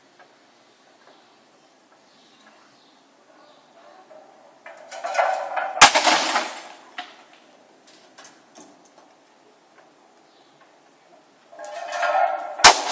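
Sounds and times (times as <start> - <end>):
roof tiles crashing and breaking: 4.6 - 8.6, 11.6 - 12.9.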